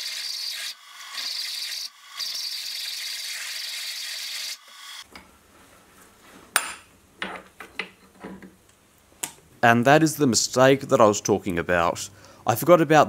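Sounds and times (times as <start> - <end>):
drill cutting into steel: 0.0 - 5.0.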